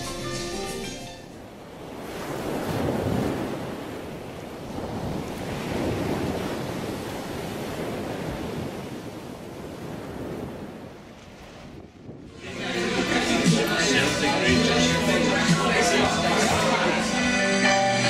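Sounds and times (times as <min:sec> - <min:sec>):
sea water rushing along hull: 0:00.0 - 0:18.0
wind on microphone: 0:01.6 - 0:12.6.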